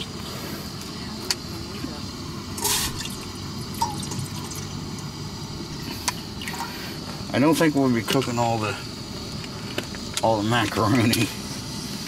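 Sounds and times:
water pouring into metal pot: 0:02.6 - 0:04.8.

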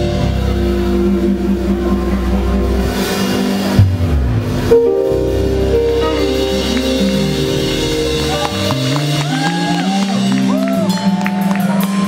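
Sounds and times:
live band playing: 0:00.0 - 0:12.0.

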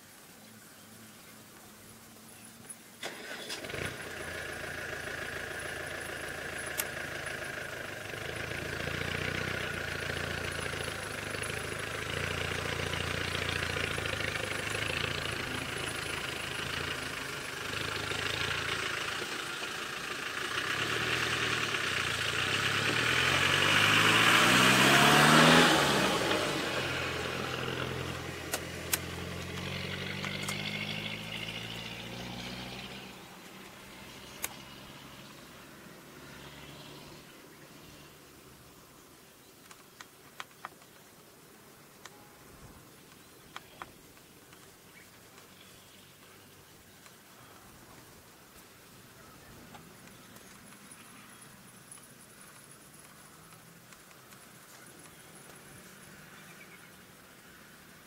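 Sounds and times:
vehicle engine passing: 0:03.0 - 0:38.5.

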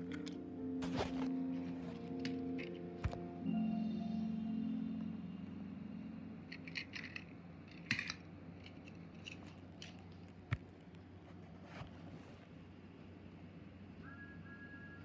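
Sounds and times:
background music: 0:00.0 - 0:07.5.

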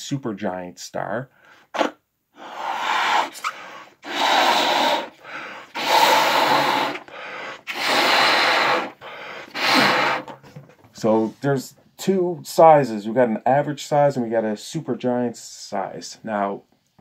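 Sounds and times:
breath drawn in: 0:01.4 - 0:10.4
man blowing up balloon: 0:01.6 - 0:10.4.

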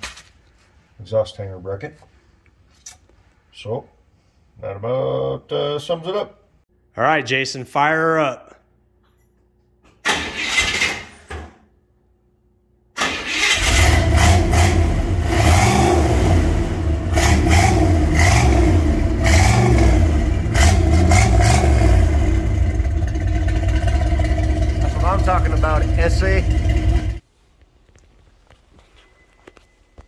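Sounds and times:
car engine rumbling: 0:13.6 - 0:27.2.

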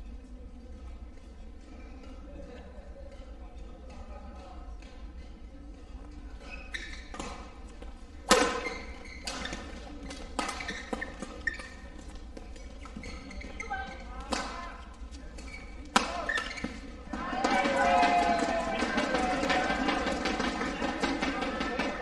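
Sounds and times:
racket hitting shuttlecock: 0:06.8 - 0:13.3, 0:13.9 - 0:14.8, 0:15.4 - 0:22.0.

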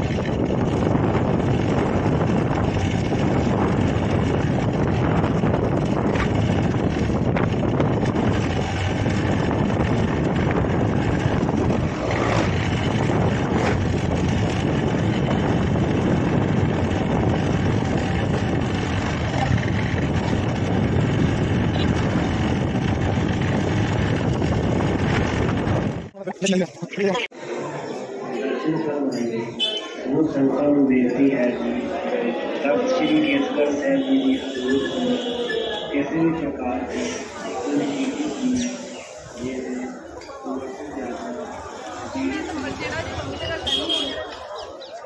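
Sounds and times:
motorcycle running: 0:00.0 - 0:26.1, 0:33.0 - 0:45.0
wind rushing over microphone: 0:00.0 - 0:26.2.

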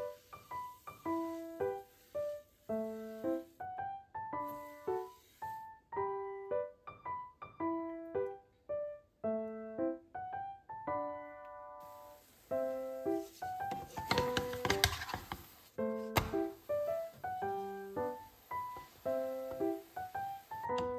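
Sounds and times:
soft hiss: 0:00.0 - 0:06.1, 0:11.4 - 0:20.9
gentle solo piano: 0:00.0 - 0:20.9.

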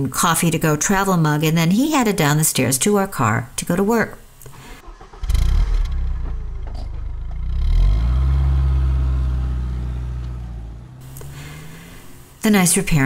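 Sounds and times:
car engine revving: 0:04.8 - 0:12.9.

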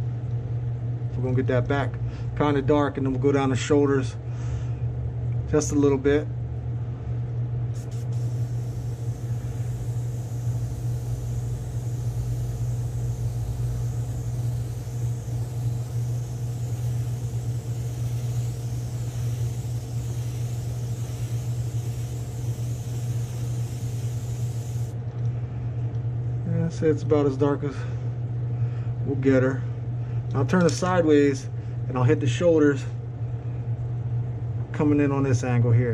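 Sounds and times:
low hum: 0:00.0 - 0:30.3
airbrush spraying hiss: 0:07.7 - 0:25.0.

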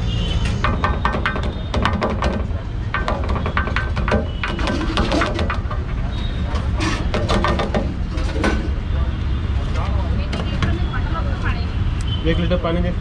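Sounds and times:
low rumble of traffic: 0:00.0 - 0:13.0
metal utensils clattering: 0:06.6 - 0:08.8.

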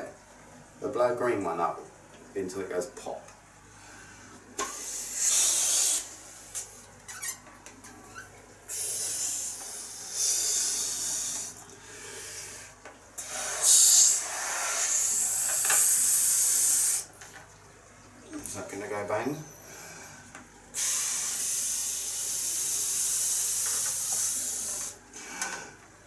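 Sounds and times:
breaths blowing up a balloon: 0:04.6 - 0:06.6, 0:08.7 - 0:11.6, 0:13.2 - 0:17.1, 0:20.8 - 0:25.7.

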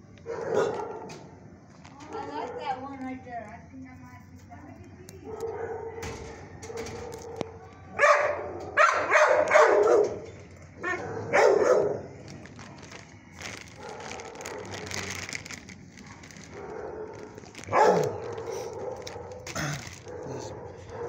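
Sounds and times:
dog barking and howling: 0:00.2 - 0:01.2, 0:05.3 - 0:12.1, 0:16.0 - 0:21.0.

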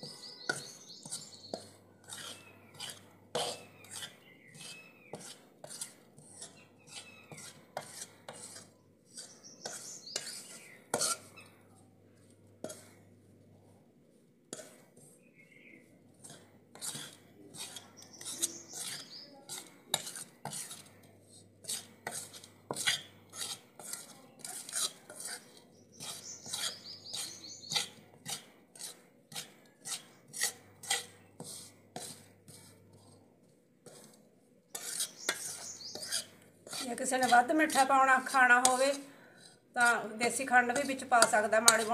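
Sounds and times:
metal spatula scraping metal pan: 0:00.0 - 0:13.1, 0:14.5 - 0:41.9.

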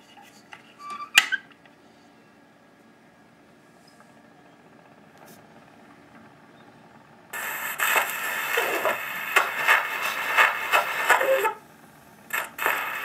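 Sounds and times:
record surface hiss and crackle: 0:07.3 - 0:13.0
faint gramophone music: 0:07.4 - 0:11.6, 0:12.3 - 0:13.0.

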